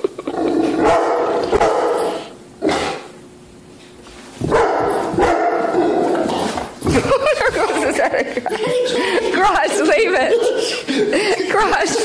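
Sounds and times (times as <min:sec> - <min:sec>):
dog barking: 0:00.8 - 0:02.3, 0:04.5 - 0:05.9.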